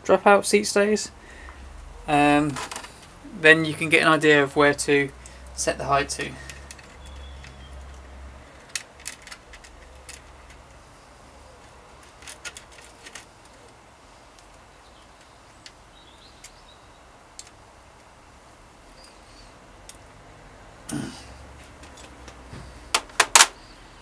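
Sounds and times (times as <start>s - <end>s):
small metallic clicks: 5.2s - 10.8s, 11.6s - 16.7s, 17.3s - 18.1s.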